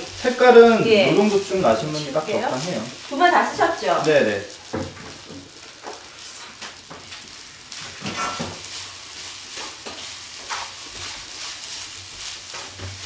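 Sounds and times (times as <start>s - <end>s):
rice sizzling in a frying pan: 0.0s - 13.0s
spatula scraping a pan: 7.7s - 13.0s.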